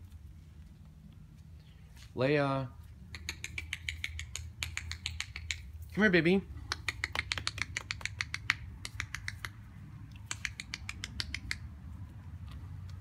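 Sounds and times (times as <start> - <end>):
low steady hum: 0.0 - 13.0
person clicking tongue: 3.1 - 5.7, 6.6 - 11.8.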